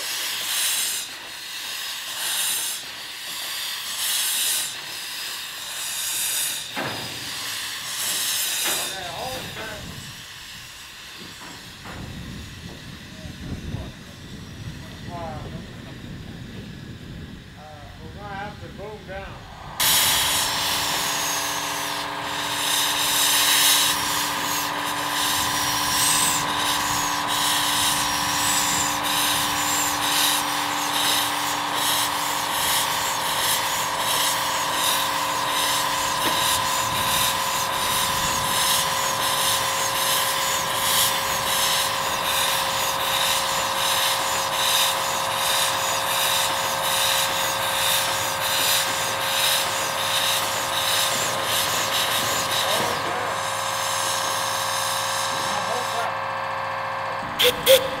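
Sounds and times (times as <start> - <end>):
steam hissing: 0.0 - 58.0
steady tones: 18.0 - 56.2
even pulsing strokes: 18.3 - 56.1.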